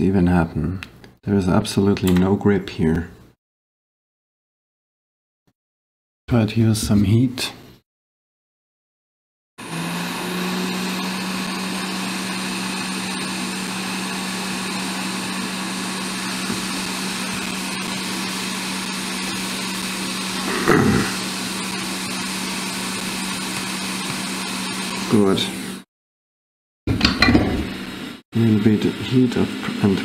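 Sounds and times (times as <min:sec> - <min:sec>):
hot-air blower hissing: 0:09.6 - 0:25.8, 0:27.0 - 0:30.0.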